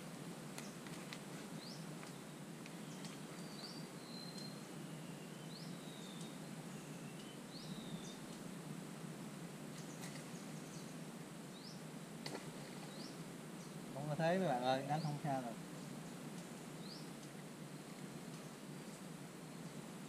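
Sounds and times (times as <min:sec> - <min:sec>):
steady outdoor hiss: 0:00.0 - 0:20.0
bird whistled calls: 0:02.8 - 0:08.2.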